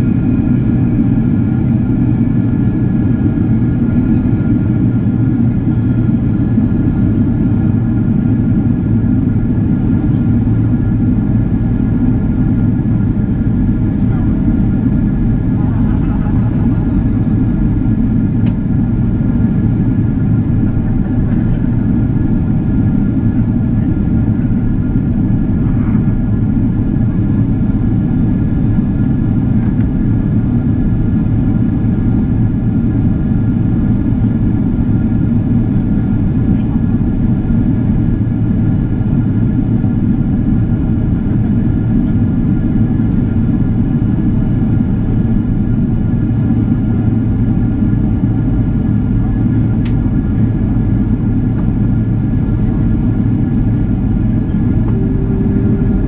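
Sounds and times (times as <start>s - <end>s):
engine and airflow rumble: 0.0s - 56.0s
faint whining tones: 53.9s - 56.0s.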